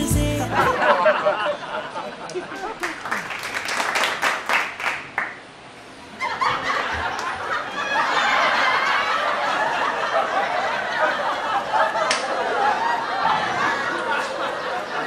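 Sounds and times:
people laughing: 0:00.2 - 0:03.2, 0:06.1 - 0:15.0.

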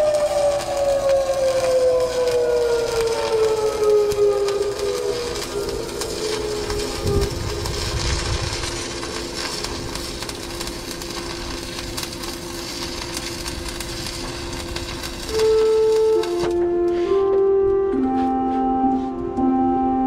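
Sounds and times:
welding arc crackling and hissing: 0:00.0 - 0:17.4
music with loud held notes: 0:15.4 - 0:20.0.

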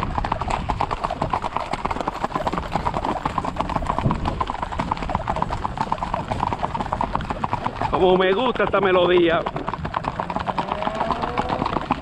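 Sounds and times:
clatter of horse hooves: 0:00.0 - 0:12.0.

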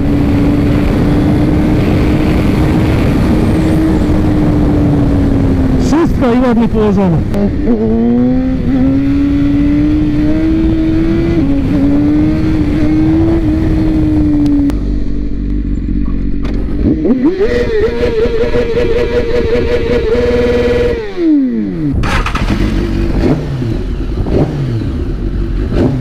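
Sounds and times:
motorcycle engine revving: 0:00.0 - 0:26.0
low engine rumble: 0:12.8 - 0:17.9.

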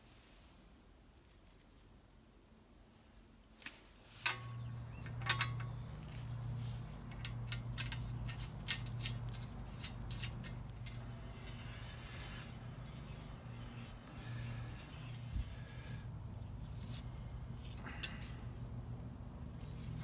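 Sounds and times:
small metal clicks: 0:04.2 - 0:16.0
steady low hum: 0:04.2 - 0:20.0.

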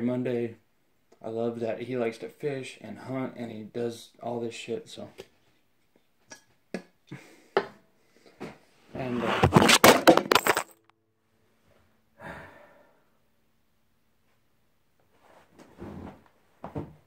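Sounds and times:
phone falling and clattering: 0:09.3 - 0:10.9.

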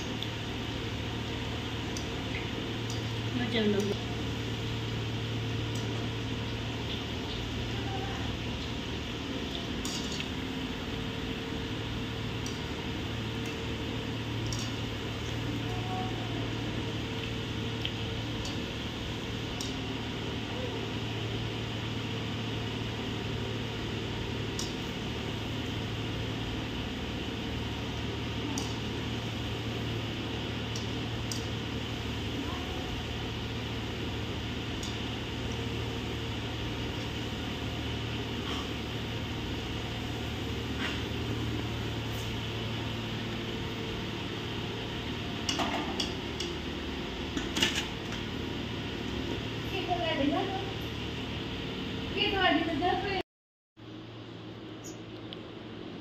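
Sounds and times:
food deep-frying sizzling in oil: 0:00.0 - 0:15.5
steady low hum: 0:00.0 - 0:53.2, 0:53.8 - 0:56.0.

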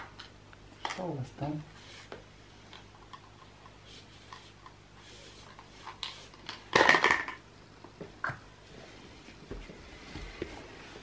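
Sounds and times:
plastic toy clicks and rustles: 0:05.5 - 0:07.4.

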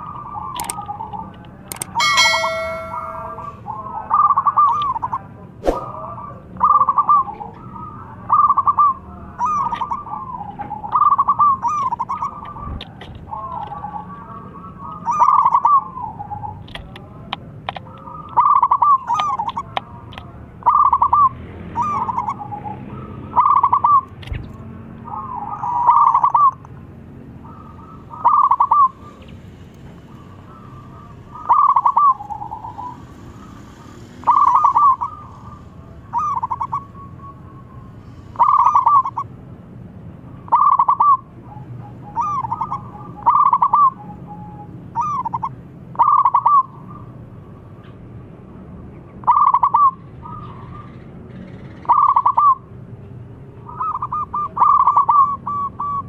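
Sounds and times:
dove cooing: 0:20.6 - 0:24.0, 0:27.5 - 0:29.2, 0:30.2 - 0:37.6, 0:38.4 - 0:39.3, 0:40.5 - 0:47.0, 0:51.9 - 0:52.6, 0:53.8 - 0:56.0.

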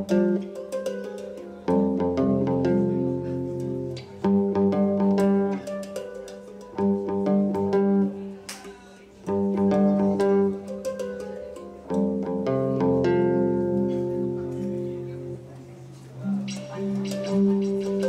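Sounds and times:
hang drum: 0:00.0 - 0:08.2, 0:16.2 - 0:18.0
electric guitar: 0:01.7 - 0:08.3.

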